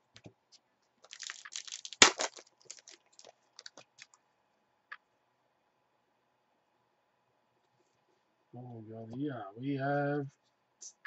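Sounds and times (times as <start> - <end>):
foil pack crinkling: 1.0 - 4.2
foil pack ripping: 1.1 - 4.1.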